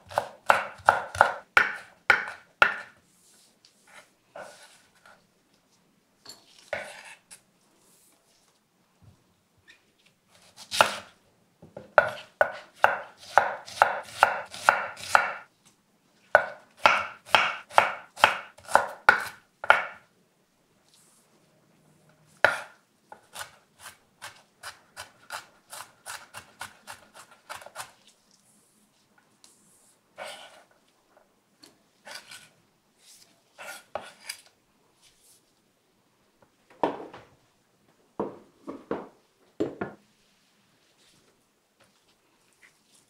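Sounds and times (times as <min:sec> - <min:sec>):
knife chopping on wooden board: 0:00.1 - 0:03.0, 0:12.0 - 0:15.4, 0:16.4 - 0:20.0, 0:22.4 - 0:27.9.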